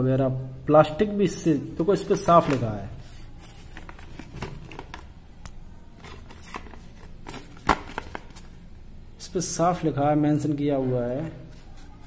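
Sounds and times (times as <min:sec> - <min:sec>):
card handling clicks and rustles: 0:02.1 - 0:05.1, 0:06.0 - 0:08.6.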